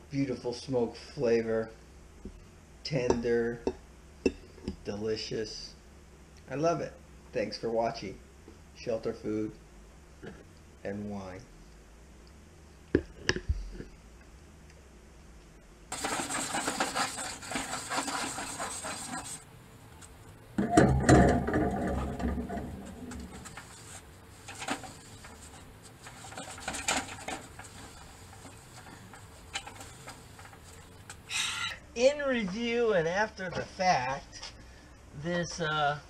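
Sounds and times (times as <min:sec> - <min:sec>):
cloth wiping grill grate: 0:15.9 - 0:20.2, 0:21.6 - 0:31.6
scraping and clattering on grill: 0:15.9 - 0:31.6.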